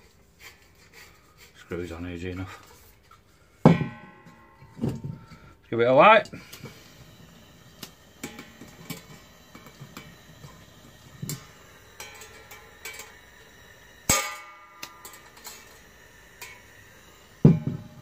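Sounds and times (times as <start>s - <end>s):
gas heater ignition clicks: 7.7s - 17.6s.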